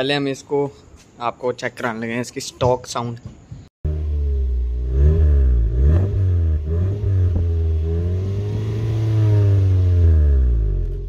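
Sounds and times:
car engine revving: 3.8 - 11.0.

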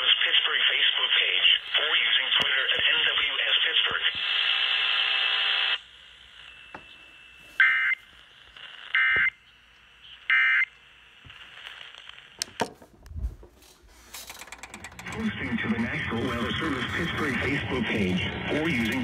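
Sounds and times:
radio broadcast audio: 0.0 - 10.4, 14.9 - 19.0
shrill alert data tones from radio: 15.0 - 19.0.

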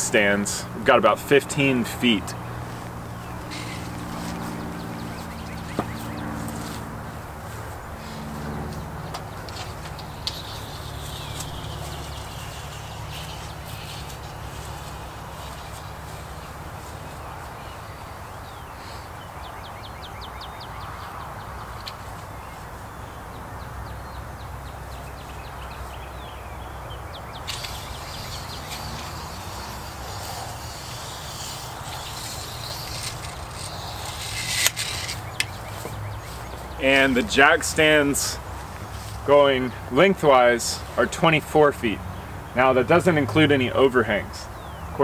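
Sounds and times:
birds calling: 0.0 - 45.0
rustle or clatter: 27.4 - 36.6.

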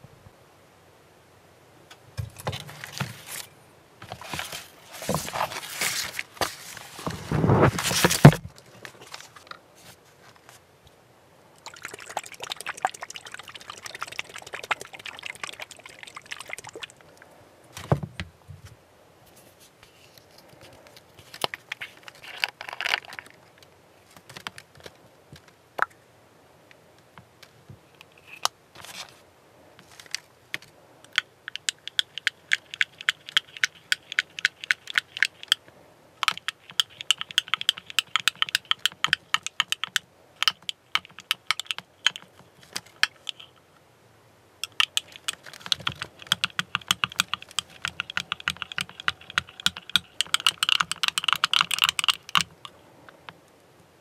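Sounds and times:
scraping and rustling: 2.2 - 10.7, 17.7 - 25.6, 28.1 - 30.7
rapid even clicking: 30.6 - 35.6, 36.2 - 43.6, 44.6 - 52.8.

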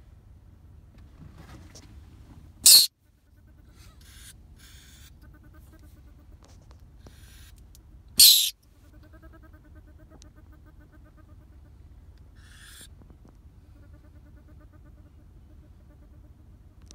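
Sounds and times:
faint rapid trill: 2.6 - 2.9, 8.2 - 8.5
weasel hissing: 2.6 - 2.9, 8.2 - 8.6, 12.4 - 12.9.

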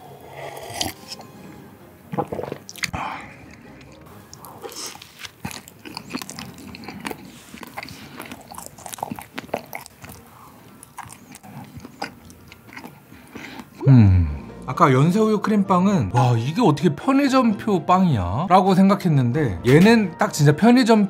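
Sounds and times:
chewing soft donut: 2.1 - 13.8.

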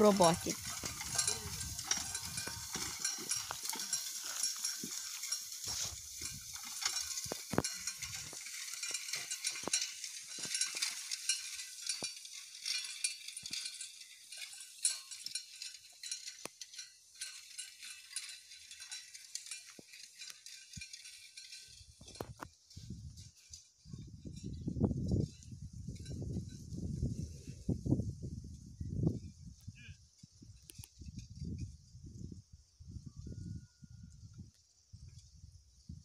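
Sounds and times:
hay rake rustling through hay: 0.0 - 24.6.

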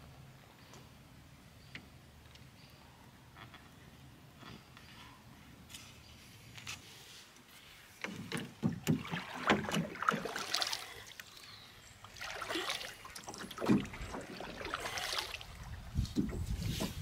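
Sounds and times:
paddle splashing water: 8.0 - 17.0
paddle knocking on canoe: 8.3 - 10.4, 13.4 - 15.0.

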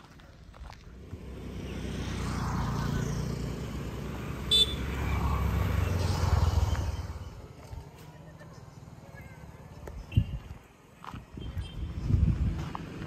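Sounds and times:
vehicle engine rumble passing: 0.2 - 9.9.

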